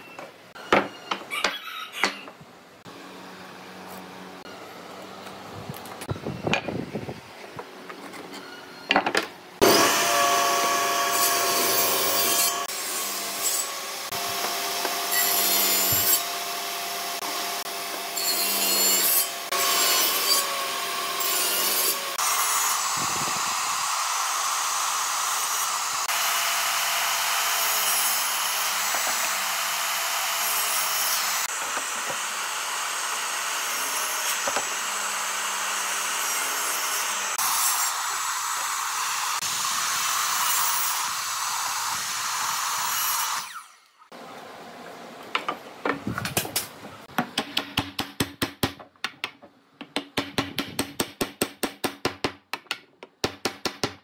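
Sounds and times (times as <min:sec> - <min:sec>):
power tool cutting wood: 0:09.6 - 0:44.2.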